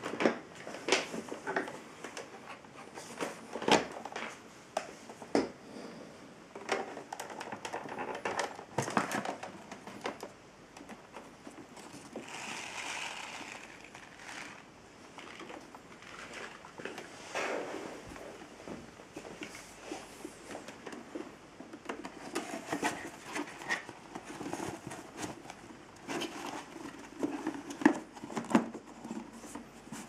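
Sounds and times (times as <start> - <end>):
soft rustle: 11.1 - 30.0.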